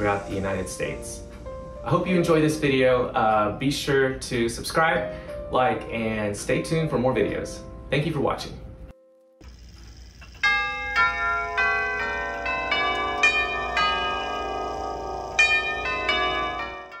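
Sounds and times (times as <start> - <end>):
clock chime bells melody: 10.3 - 17.0.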